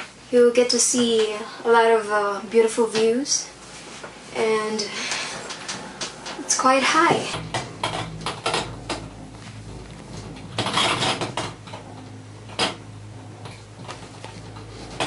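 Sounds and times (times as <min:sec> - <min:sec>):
gondola cabin low hum: 0:00.3 - 0:15.0
clattering rush: 0:07.3 - 0:12.8
metallic clicks and rattles: 0:07.4 - 0:09.3, 0:09.9 - 0:12.8.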